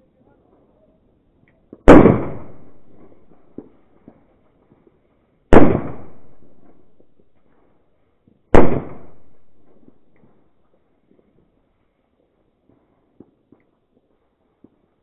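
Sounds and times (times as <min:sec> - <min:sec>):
firecracker bangs echoing: 0:01.8 - 0:04.3, 0:05.5 - 0:07.4, 0:08.5 - 0:10.4.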